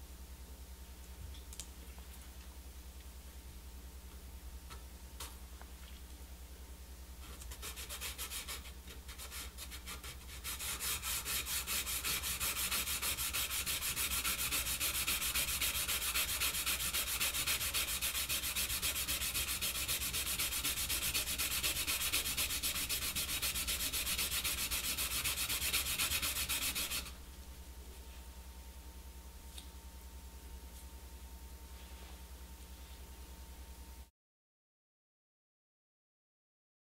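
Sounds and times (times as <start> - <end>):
reed sanding on sandpaper: 7.5 - 27.1.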